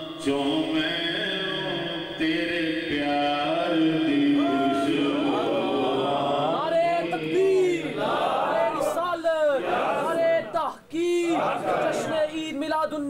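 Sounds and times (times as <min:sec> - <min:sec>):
man chanting into microphone: 0:00.0 - 0:08.0.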